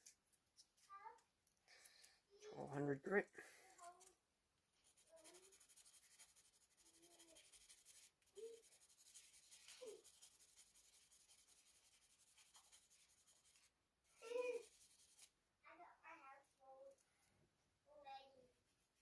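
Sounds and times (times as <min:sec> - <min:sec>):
sandpaper scratching: 0:04.8 - 0:13.7, 0:14.5 - 0:15.3.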